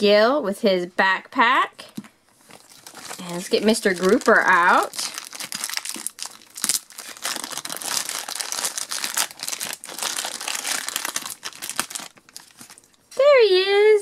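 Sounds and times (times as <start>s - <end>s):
plastic bag crinkling: 2.4s - 13.0s.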